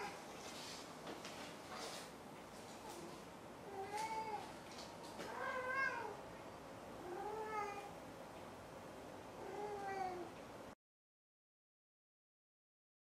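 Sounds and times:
cat meowing in a box: 5.3 - 6.2.

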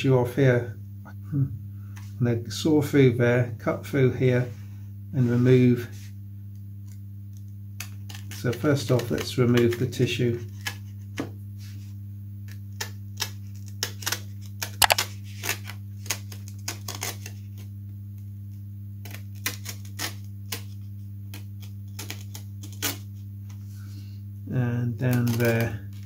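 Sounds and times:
scalpel cutting tissue paper: 13.6 - 17.6, 19.1 - 23.0.

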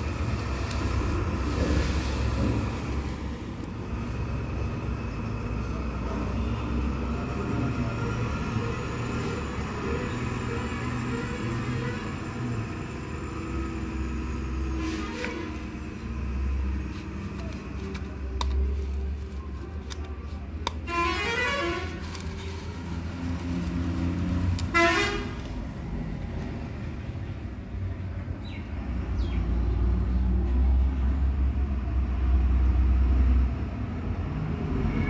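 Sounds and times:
traffic rumble: 0.0 - 35.0
car horns honking: 20.7 - 22.0, 24.6 - 25.4.

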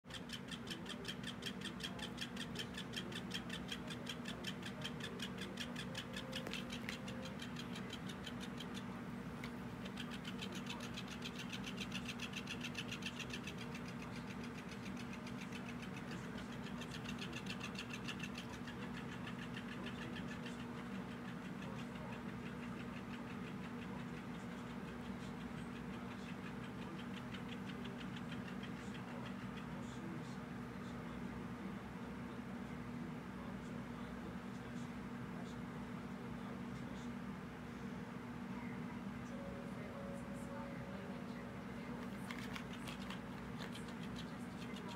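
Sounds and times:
toy motor rattling hum: 0.1 - 9.0, 9.6 - 30.1, 41.8 - 44.9.

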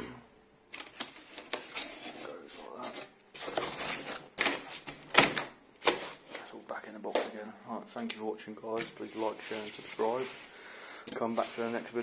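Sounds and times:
cardboard and bubble wrap rustling: 0.7 - 6.6, 8.7 - 10.6, 11.2 - 12.0.

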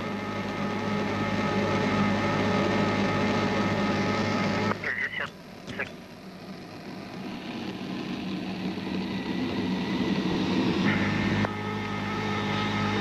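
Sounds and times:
jet engines and airflow rushing: 0.0 - 13.0
intercom hum: 4.0 - 6.2, 10.8 - 13.0.

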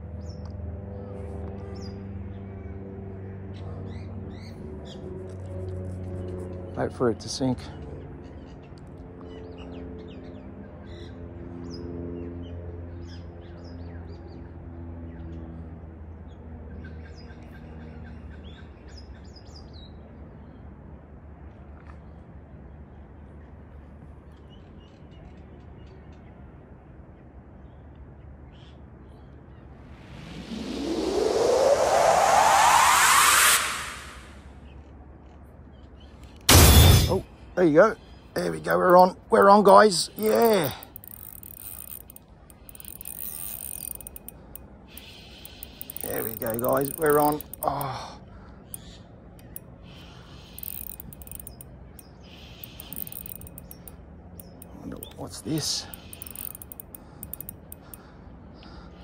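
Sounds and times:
distant bird chirps: 37.2 - 59.0
fishing reel gear whirr: 38.4 - 48.0, 49.4 - 58.0
reel clicks: 38.8 - 48.0, 49.4 - 49.7, 50.5 - 58.0
small ticks: 40.2 - 48.0, 48.8 - 55.2, 55.8 - 58.7.

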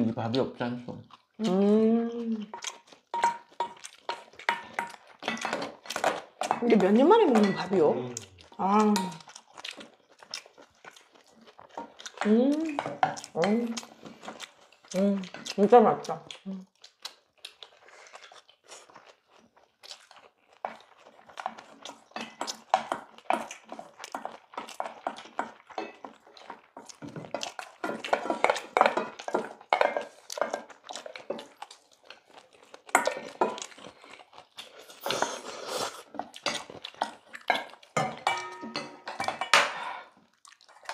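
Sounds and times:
chewing: 0.0 - 40.9
spoons scraping metal bowls: 3.1 - 8.0, 26.8 - 31.5, 35.0 - 40.1.

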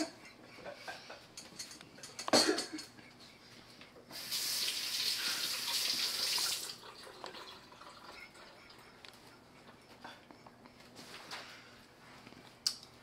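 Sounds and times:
light clatters: 1.3 - 3.0
water tap running: 4.1 - 8.1.

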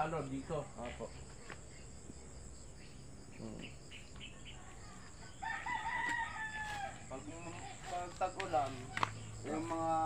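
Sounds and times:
crickets chirring: 0.0 - 10.0
rooster crowing: 4.8 - 7.2.

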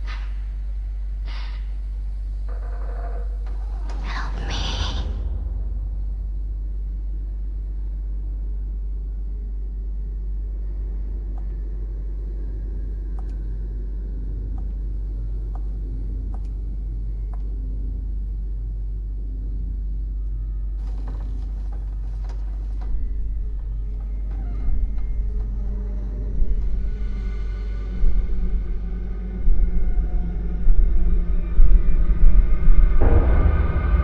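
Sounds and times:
low rumbling drone: 0.0 - 34.0
faint ticks: 13.1 - 13.4.

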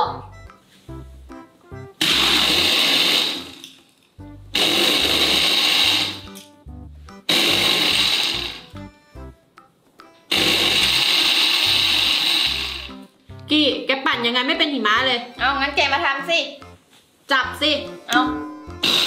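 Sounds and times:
blender pulsing: 2.0 - 3.6, 4.6 - 6.4, 7.3 - 8.7, 10.3 - 13.0.

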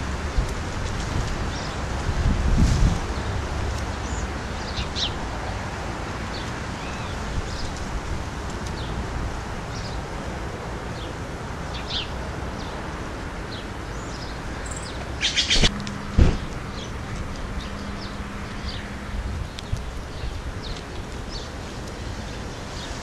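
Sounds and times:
bird chirps: 14.6 - 15.7.

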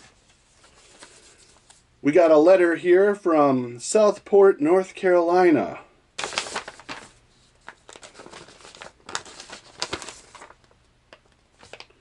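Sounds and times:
paper rustling and crinkling: 0.0 - 1.8, 6.2 - 12.0.

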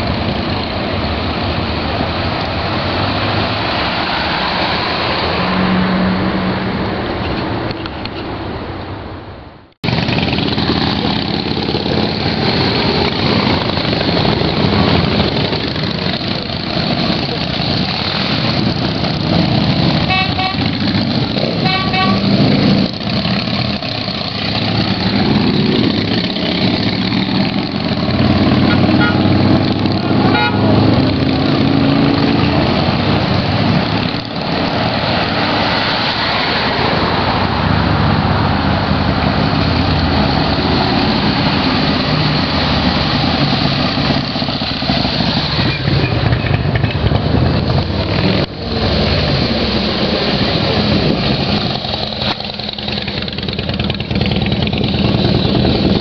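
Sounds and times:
motorcycle engines running loudly: 0.0 - 3.9, 9.8 - 56.0
horn tooting: 20.0 - 22.5, 28.6 - 29.4, 30.2 - 31.0.

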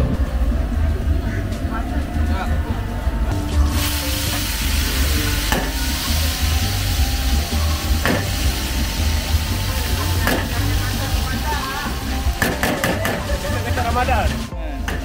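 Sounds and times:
oil sizzling in a wok: 3.6 - 15.0.

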